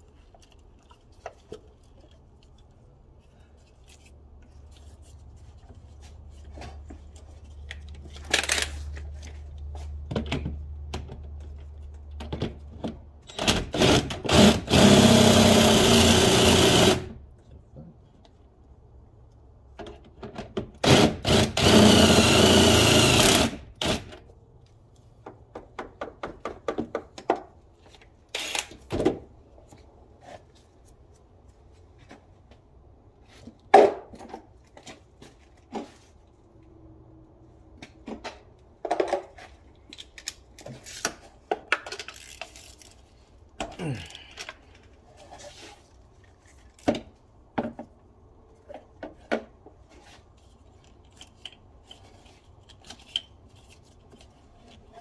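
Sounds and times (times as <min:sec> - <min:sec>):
cordless drill running: 0:13.8 - 0:17.1, 0:20.8 - 0:24.0, 0:28.4 - 0:28.7.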